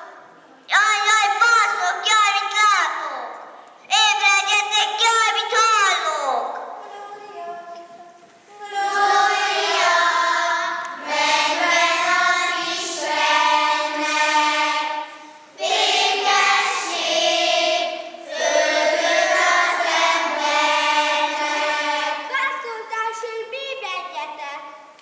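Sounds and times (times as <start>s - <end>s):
children singing together: 8.5s - 22.3s.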